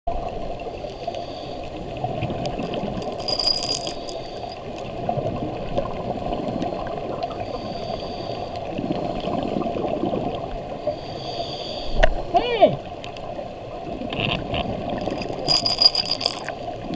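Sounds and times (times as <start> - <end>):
underwater watery wash: 0.1 - 16.9
small clicks and crackles: 2.4 - 5.1, 14.0 - 16.9.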